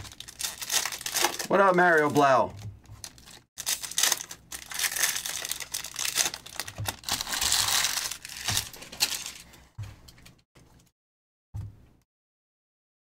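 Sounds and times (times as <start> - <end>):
plastic wrappers crinkling: 0.0 - 10.4.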